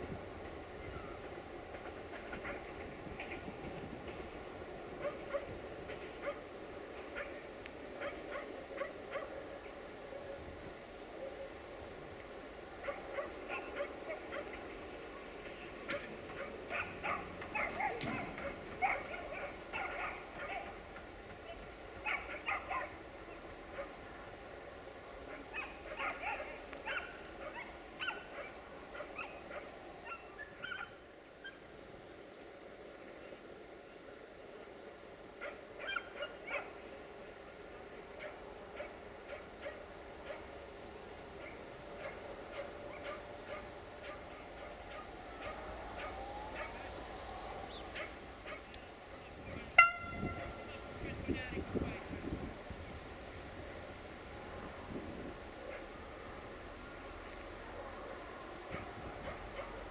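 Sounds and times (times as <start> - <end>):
diesel railcar running: 0.0 - 10.9, 11.6 - 30.9, 37.2 - 59.9
distant train rumbling: 0.0 - 59.9
dog barking: 5.0 - 6.5, 7.1 - 7.4, 8.0 - 9.5, 12.8 - 14.6, 15.9 - 20.8, 21.4 - 23.0, 23.7 - 24.0, 25.3 - 31.6, 35.4 - 36.8, 38.2 - 40.6, 41.4 - 46.9, 47.9 - 48.7, 55.6 - 55.9, 57.8 - 59.8.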